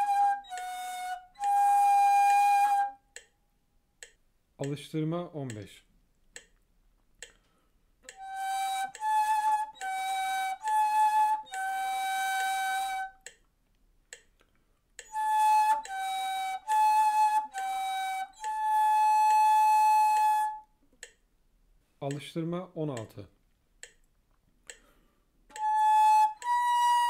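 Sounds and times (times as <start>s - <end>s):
breathy cane flute notes: 0.0s - 3.3s, 7.4s - 13.4s, 15.0s - 20.7s, 25.5s - 27.0s.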